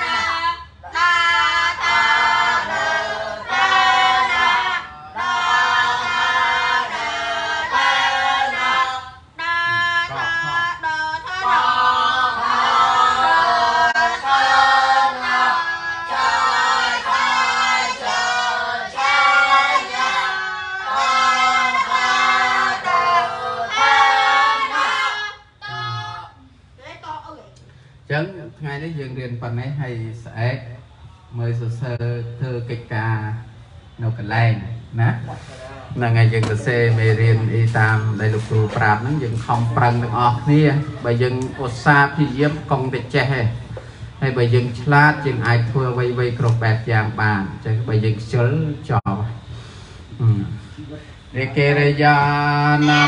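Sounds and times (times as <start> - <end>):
group of voices chanting: 0.0 - 26.5, 52.2 - 53.0.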